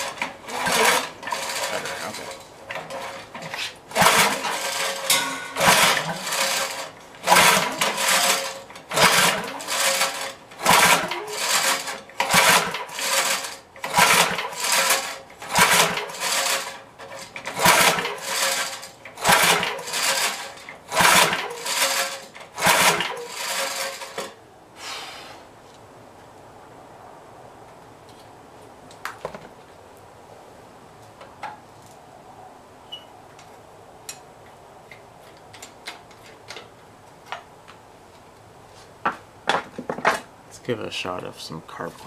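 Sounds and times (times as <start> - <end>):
engine cranking over: 0.0 - 24.4
engine pull-starter being pulled: 0.0 - 24.4.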